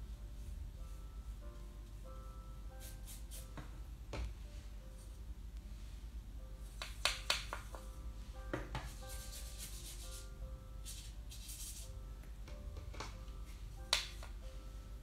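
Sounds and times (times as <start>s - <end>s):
quiet background music: 0.0s - 15.0s
paintbrush brushing on paper: 2.8s - 3.5s, 8.8s - 12.0s
brush clicking in plastic palette: 6.8s - 7.7s, 13.9s - 14.4s.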